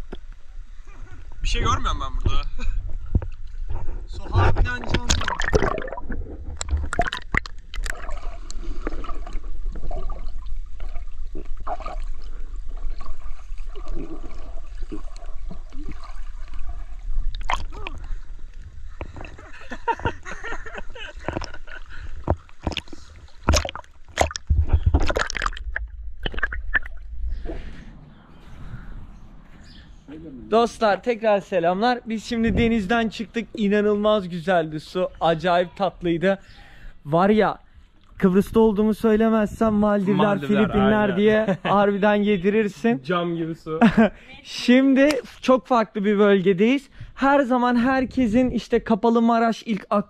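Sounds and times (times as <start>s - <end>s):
water splashes: 0.0s - 28.0s
seawater sloshing and gurgling: 2.7s - 28.0s.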